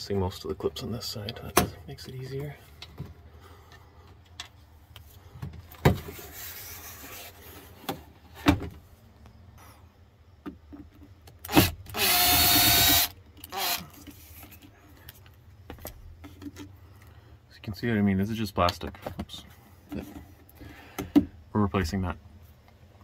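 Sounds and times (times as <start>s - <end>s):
impact driver running: 11.5s - 13.8s.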